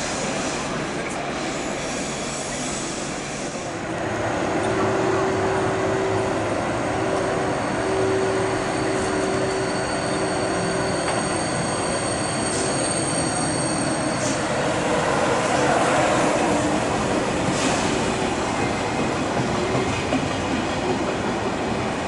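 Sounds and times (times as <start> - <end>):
train rumble: 0.0 - 22.0
high wheel squeal: 7.5 - 14.5.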